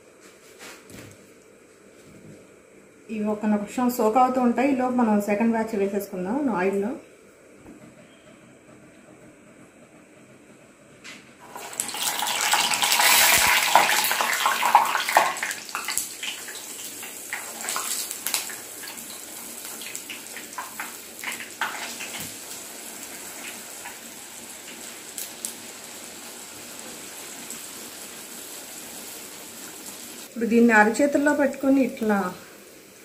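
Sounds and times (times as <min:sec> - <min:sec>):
batter sizzling in hot oil: 0:11.4 - 0:33.0.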